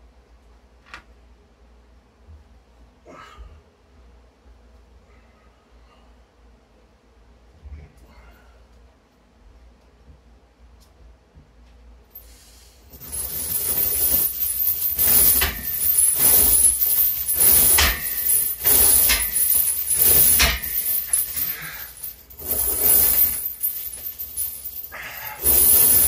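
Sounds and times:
heavy chains clanking: 12.9 - 26.0.

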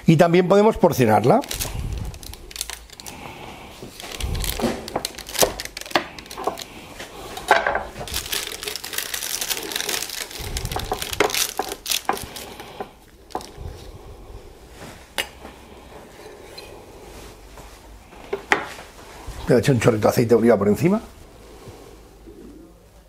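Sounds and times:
parchment crinkling: 1.0 - 13.8
knife crunching through crust: 4.0 - 6.8, 8.0 - 12.8.

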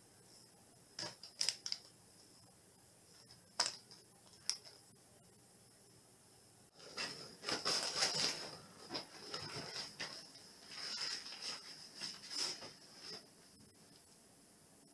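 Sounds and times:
fabric tunnel rustling: 6.8 - 13.3.

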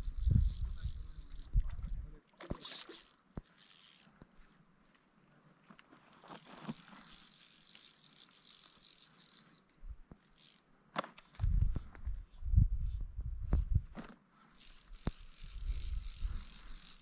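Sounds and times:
fishing reel drag clicking: 0.0 - 1.6, 2.4 - 4.4, 6.2 - 10.6, 14.5 - 17.0.

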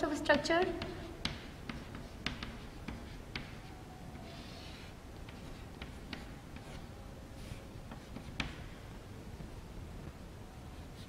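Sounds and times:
chalk tapping and scraping on chalkboard: 0.6 - 8.7.

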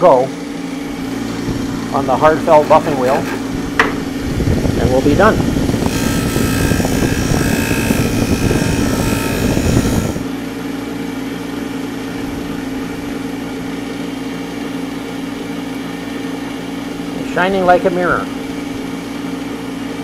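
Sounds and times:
motor and wheel humming: 0.0 - 17.2
buffing wheel polishing steel: 4.9 - 10.3.

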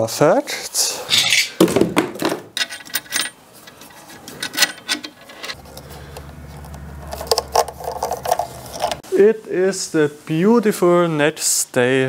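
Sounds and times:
clicks and knocks of handled parts: 2.2 - 9.0.

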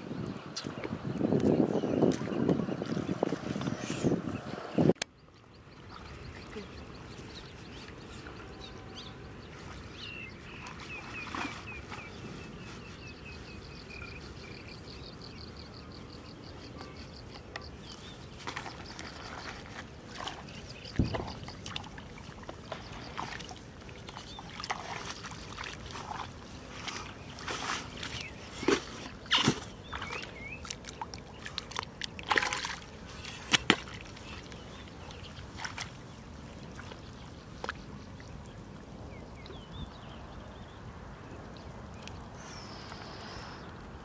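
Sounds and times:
outdoor background: 0.0 - 44.0
footsteps through mud and water: 0.5 - 3.9, 9.5 - 15.4, 16.6 - 39.8.

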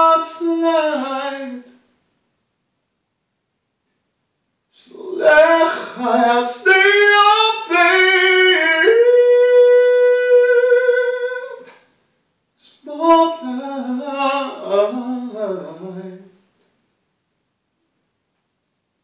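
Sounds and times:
man singing in a high voice: 0.0 - 1.8, 4.8 - 11.8, 12.6 - 16.4.

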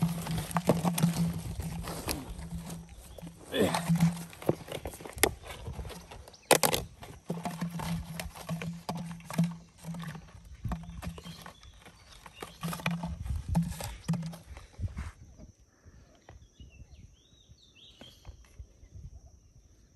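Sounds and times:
plastic bottles clicking and crinkling: 0.0 - 14.6.

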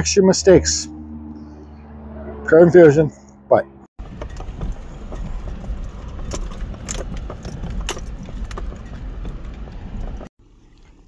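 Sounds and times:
car interior low rumble: 2.5 - 11.0
gravel crunching under tyres: 4.0 - 11.0.

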